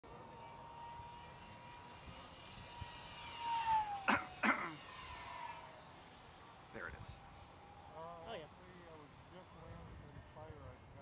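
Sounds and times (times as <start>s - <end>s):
distant jet airliner whine: 0.1s - 11.0s
person coughing: 4.1s - 4.8s.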